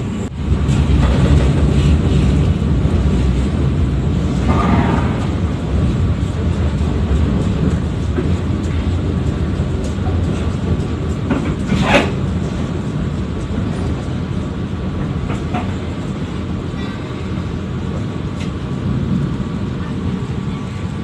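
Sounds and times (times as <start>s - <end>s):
train rumbling over rails: 0.0s - 21.0s.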